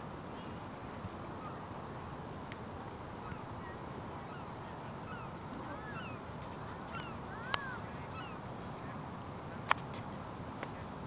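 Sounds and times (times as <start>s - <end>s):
waterbirds calling: 0.0s - 10.0s
sharp clicks: 9.7s - 10.0s.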